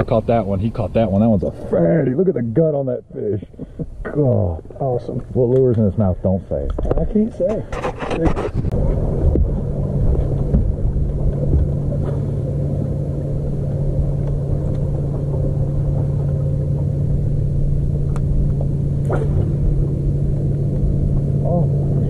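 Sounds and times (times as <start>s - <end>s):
boat motor running: 7.4s - 22.0s.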